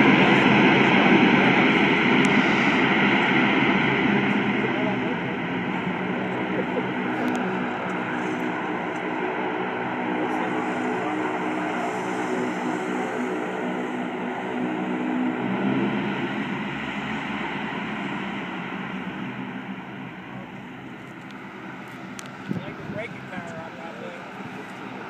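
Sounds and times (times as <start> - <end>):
propeller engines droning: 0.0 - 25.0.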